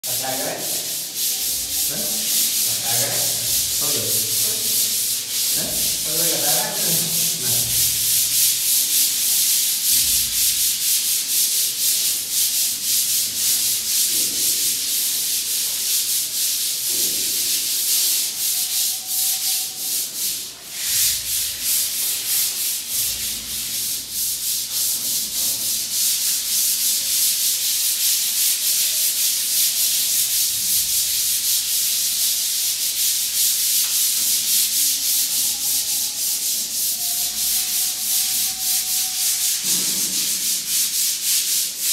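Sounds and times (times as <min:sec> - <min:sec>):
sandpaper scratching on putty: 0:00.2 - 0:41.9.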